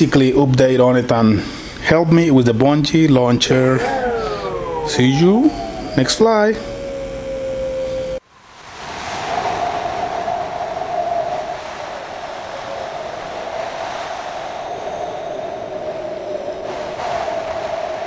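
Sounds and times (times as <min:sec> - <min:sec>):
model plane motor and propeller: 0:03.5 - 0:08.2.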